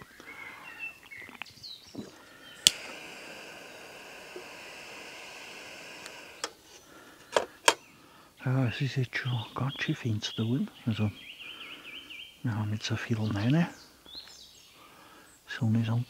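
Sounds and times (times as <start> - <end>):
birds twittering: 0.0 - 16.0
steady hiss: 2.0 - 8.3.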